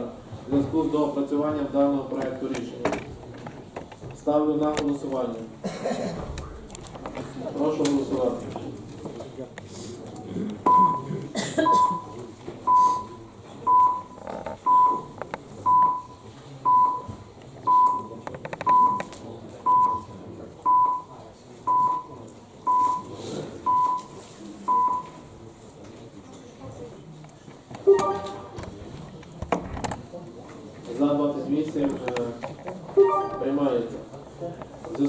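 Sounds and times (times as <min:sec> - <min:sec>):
low murmur of voices: 0:00.0 - 0:35.0
short high countdown beeps: 0:27.9 - 0:28.5, 0:33.0 - 0:33.6.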